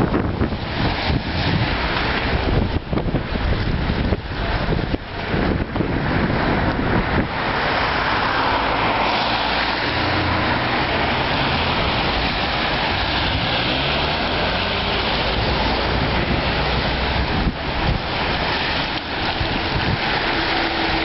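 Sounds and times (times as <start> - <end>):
rain on vehicle: 0.0 - 21.0
tyres hissing on wet road: 0.0 - 21.0.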